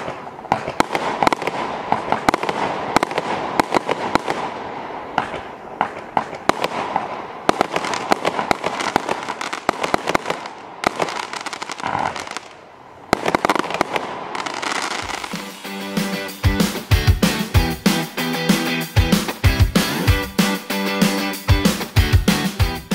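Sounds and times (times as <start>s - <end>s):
firework barrage sharp pops: 0.0s - 15.5s
noisy haze: 0.0s - 22.9s.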